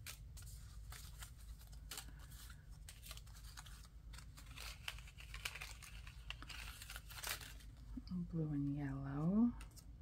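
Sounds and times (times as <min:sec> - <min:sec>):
paper rustling: 0:00.0 - 0:07.9.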